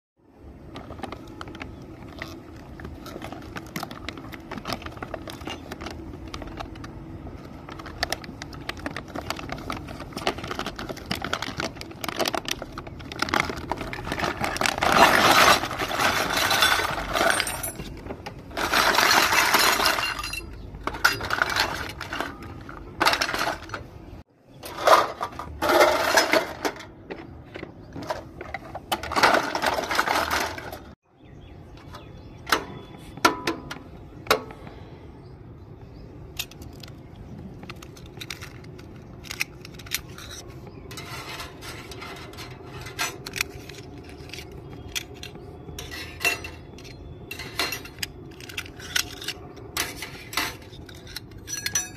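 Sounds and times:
packaging rustling and crinkling: 0.5 - 19.8
plastic toy pieces clicking: 36.4 - 40.4, 46.7 - 51.6.

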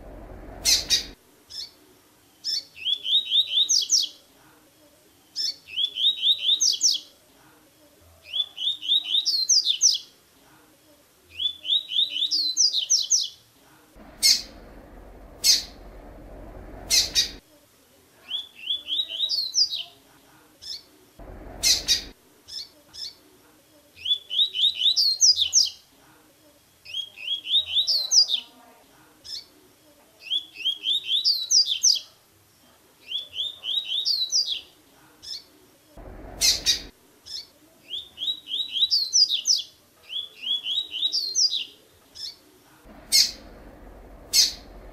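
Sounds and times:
bird singing rising notes: 0.0 - 1.2, 14.0 - 17.4, 21.2 - 22.1, 36.0 - 36.9, 42.9 - 44.9.

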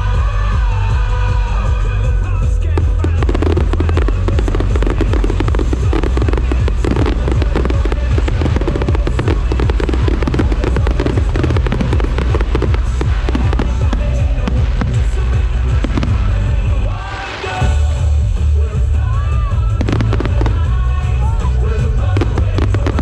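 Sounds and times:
deep rumble: 0.0 - 23.0
fireworks bangs and crackles: 2.3 - 23.0.

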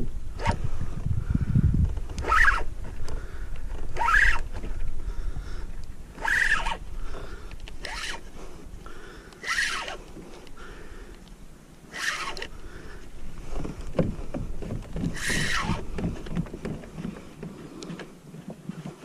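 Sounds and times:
pedal drive squeaking: 1.9 - 5.0, 6.1 - 8.3, 9.4 - 10.0, 11.9 - 12.6, 13.6 - 17.4.

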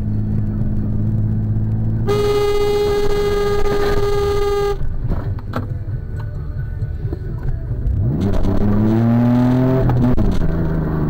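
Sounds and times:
car driving drone: 0.0 - 11.0
car horn blast: 2.1 - 5.0.

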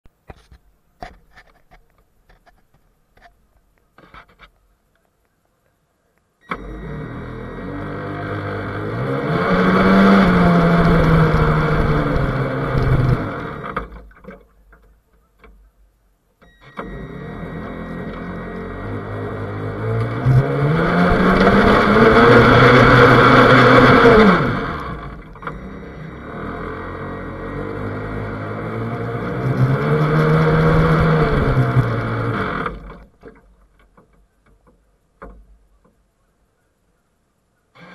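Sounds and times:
model boat motor running: 6.6 - 14.0, 16.8 - 33.2.

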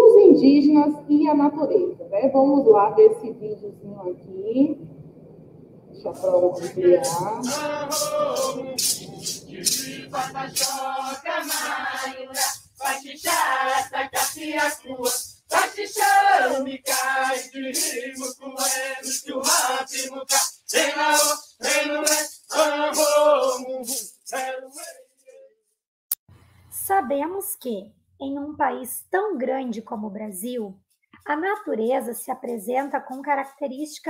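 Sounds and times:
rattles shaken on a beat: 6.5 - 25.4, 31.2 - 34.0
group of voices chanting: 6.6 - 25.0.

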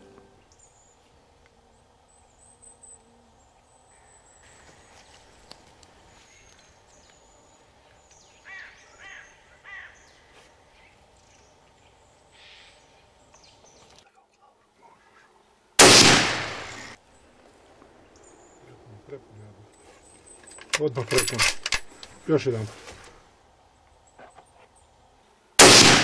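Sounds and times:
bird calling: 2.1 - 14.0
rifle shot: 15.8 - 17.0, 25.6 - 26.0.

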